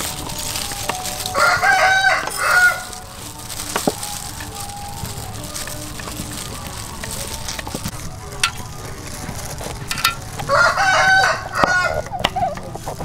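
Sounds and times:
rooster crowing: 1.2s - 3.0s, 10.4s - 12.6s.

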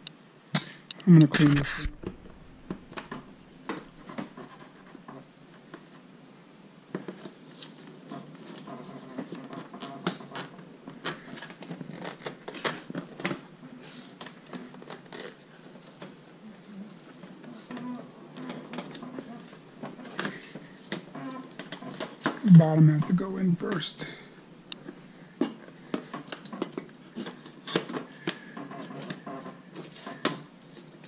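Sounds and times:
scratching and rustling on car parts: 7.0s - 16.3s, 24.8s - 31.0s.

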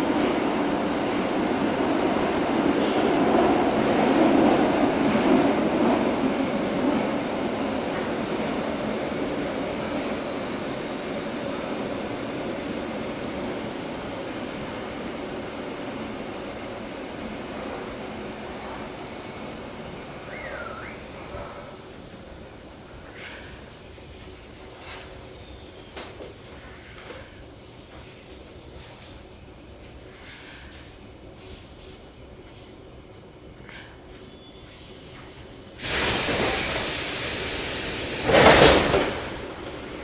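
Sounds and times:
metro train rumbling in tunnel: 0.0s - 40.0s
train wheels squealing: 20.2s - 21.7s, 34.1s - 38.2s.

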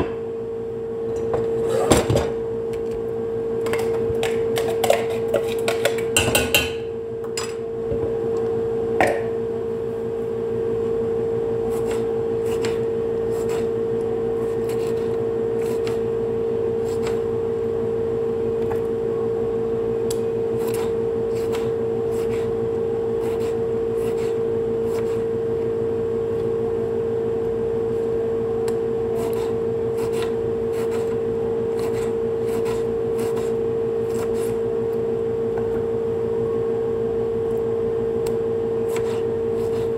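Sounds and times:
appliance hum: 0.0s - 39.9s
knife slicing a tomato: 11.7s - 13.7s, 29.2s - 31.1s, 31.8s - 34.6s, 38.8s - 39.9s.

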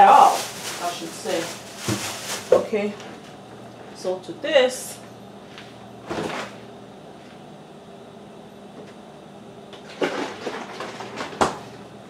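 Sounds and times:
kitchen items clattering: 0.0s - 3.0s, 9.8s - 11.6s
faint hum: 0.0s - 12.0s.

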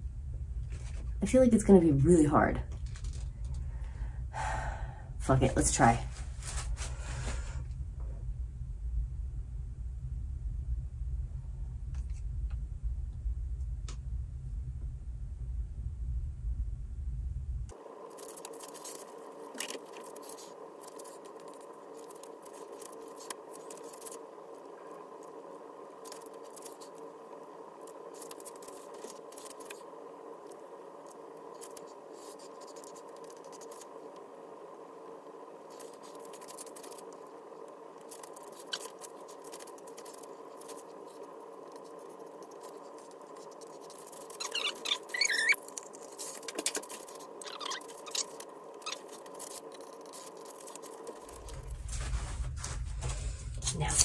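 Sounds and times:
room hum: 0.0s - 54.0s
faint clicks and scrapes: 2.7s - 3.7s, 26.0s - 34.3s, 35.6s - 54.0s
plastic sheet rustling: 6.1s - 7.6s, 38.1s - 54.0s
squeeze bottle squeaks and squelches: 44.0s - 49.3s.

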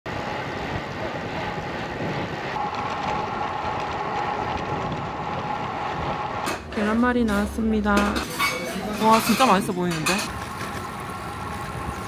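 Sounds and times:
bike tyre noise: 0.1s - 7.4s, 10.2s - 12.0s
wind rushing over microphone: 0.1s - 8.3s.

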